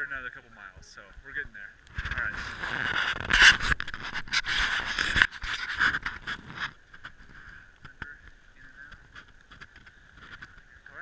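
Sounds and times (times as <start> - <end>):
camera handling noise: 1.9 - 7.2.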